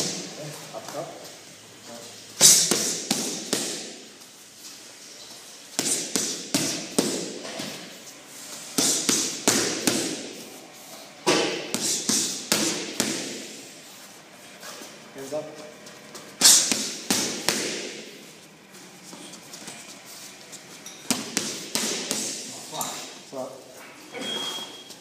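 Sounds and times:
boxing gloves hitting mitts: 2.4s - 4.1s, 5.7s - 7.9s, 8.7s - 10.4s, 11.2s - 13.6s, 16.4s - 18.2s, 21.0s - 22.5s.

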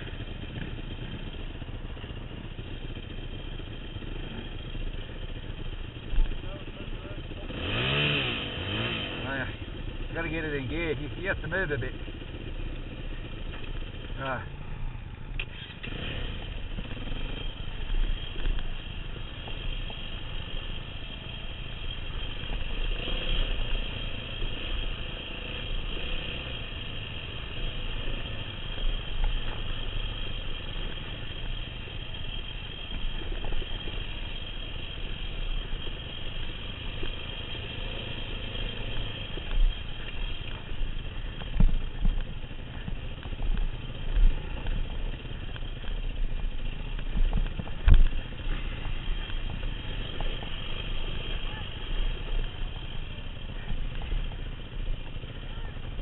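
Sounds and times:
bike rattling over rough ground: 0.0s - 56.0s
dirt bike engine running: 0.0s - 56.0s.

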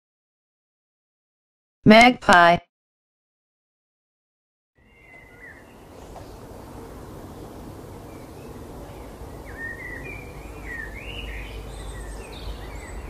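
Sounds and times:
birds whistling chirps: 4.8s - 13.0s.

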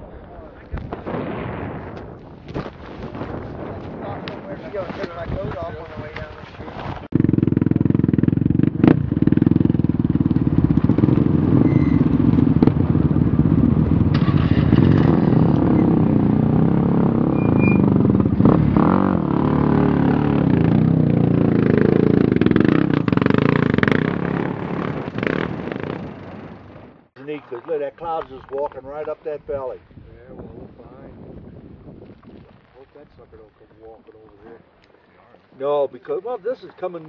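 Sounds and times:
atv engines running: 4.6s - 29.4s.

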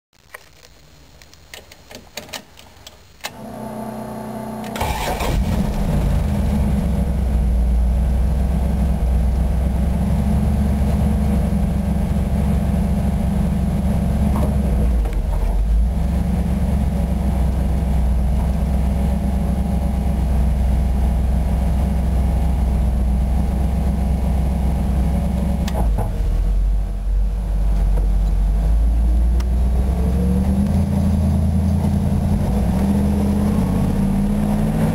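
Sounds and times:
van engine idling: 3.3s - 34.0s
starter cranking engine: 4.6s - 6.3s.

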